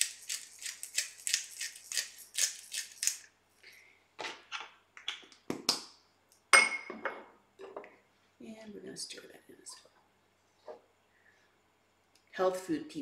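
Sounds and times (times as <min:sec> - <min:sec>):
pepper grinder rasping: 0:00.0 - 0:03.3.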